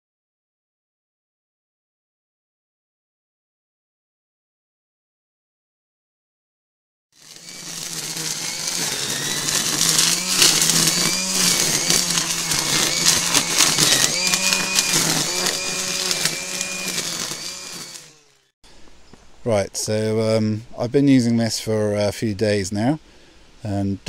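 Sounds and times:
line trimmer motor whine: 7.2s - 18.5s
trimmer line striking stems: 7.2s - 18.5s.

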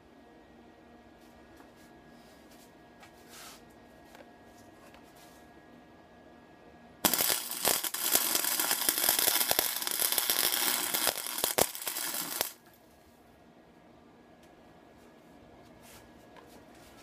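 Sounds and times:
arc welding crackling: 7.0s - 12.6s
sharp welding pops: 7.0s - 12.6s.

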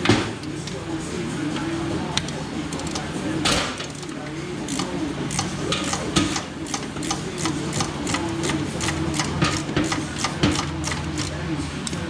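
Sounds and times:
steady low hum: 0.0s - 12.0s
hand ratchet clicking: 2.2s - 3.0s, 3.8s - 11.3s.

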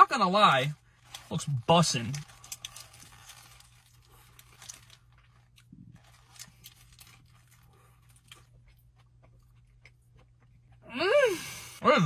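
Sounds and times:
low steady hum: 0.0s - 12.0s
person chewing food: 2.1s - 10.9s.

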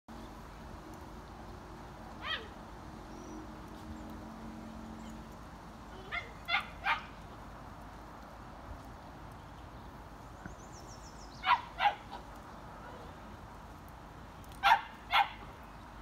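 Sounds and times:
high puppy yips: 2.2s - 2.6s, 6.0s - 7.2s, 11.4s - 12.2s, 14.6s - 15.4s
puppies yelping: 2.2s - 2.6s, 6.0s - 7.1s, 11.4s - 12.4s.

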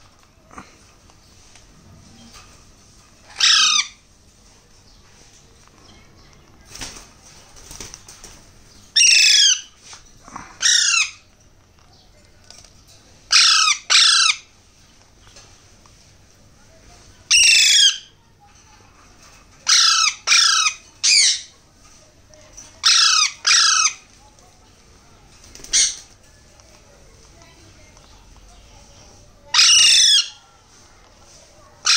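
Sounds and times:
parakeet chicks harsh calls: 3.2s - 4.1s, 8.9s - 9.8s, 10.6s - 11.2s, 13.3s - 14.6s, 17.3s - 18.2s, 19.6s - 21.6s, 22.7s - 24.1s, 25.6s - 26.2s, 29.5s - 30.4s.

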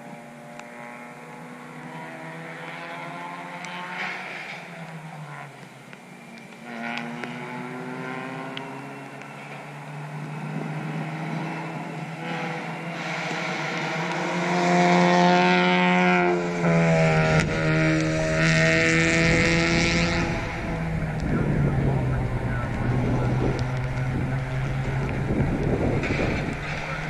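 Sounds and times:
race car engines: 0.0s - 27.0s.

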